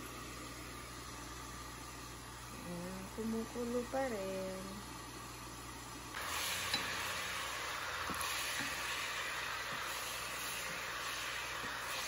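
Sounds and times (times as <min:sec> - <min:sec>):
water boiling in a pan: 0:00.0 - 0:12.0.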